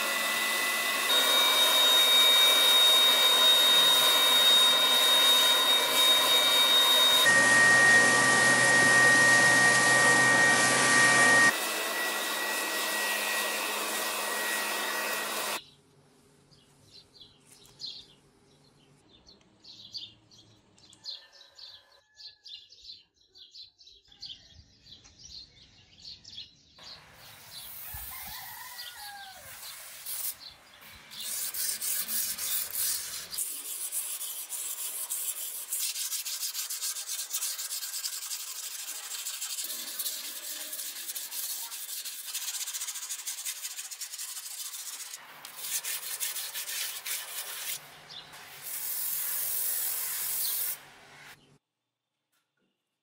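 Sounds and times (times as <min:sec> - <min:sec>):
sanding block rubbing on blade: 0:00.0 - 0:07.3, 0:29.3 - 0:51.4.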